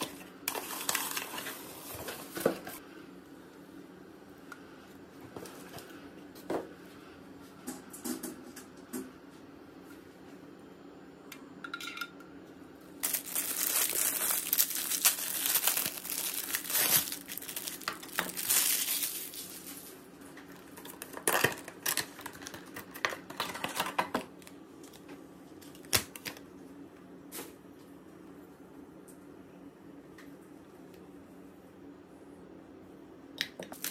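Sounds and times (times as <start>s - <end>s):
plastic bags crinkling: 0.0s - 2.4s, 13.0s - 24.5s.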